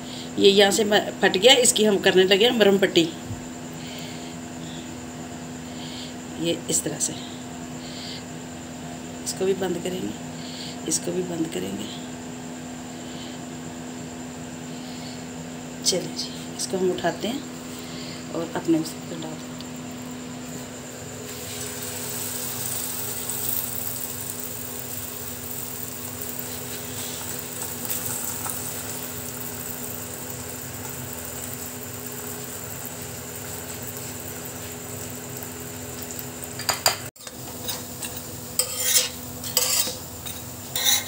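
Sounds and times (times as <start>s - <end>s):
flatbread sizzling in oil: 19.8s - 41.0s
utensil scraping a griddle: 37.2s - 41.0s.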